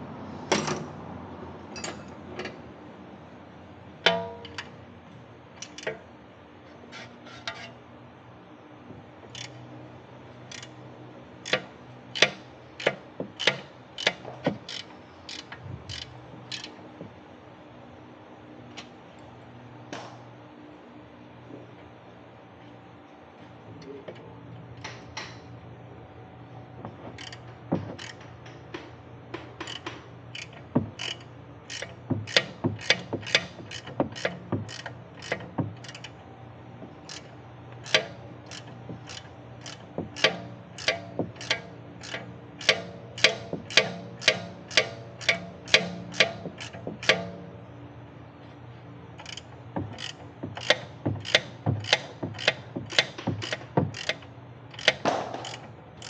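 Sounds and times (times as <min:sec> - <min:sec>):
ratchet wrench clicking: 0:09.4 - 0:09.6, 0:10.5 - 0:10.8, 0:11.4 - 0:16.8, 0:27.2 - 0:28.6, 0:29.6 - 0:36.2, 0:37.1 - 0:47.3, 0:49.2 - 0:56.0.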